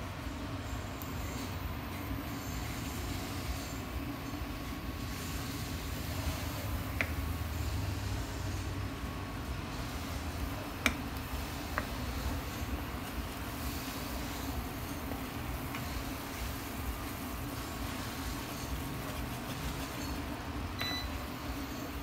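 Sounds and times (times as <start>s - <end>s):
wooden spatula scraping pan: 16.6s - 20.3s.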